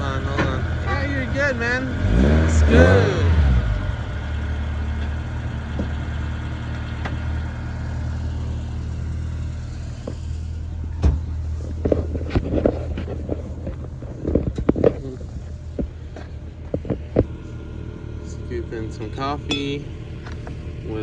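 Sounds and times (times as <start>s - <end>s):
car engine idling: 0.0s - 21.0s.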